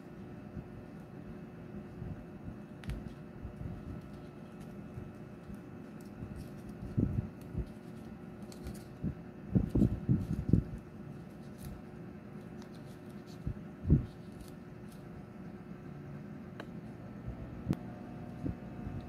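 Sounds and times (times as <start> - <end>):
paper crinkling: 2.7 - 15.5.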